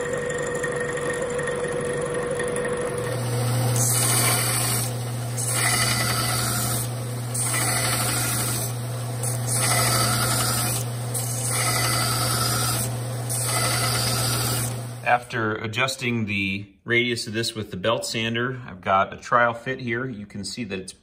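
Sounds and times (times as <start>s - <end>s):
belt sander motor hum: 0.0s - 15.2s
metal bar grinding on belt: 2.6s - 15.1s.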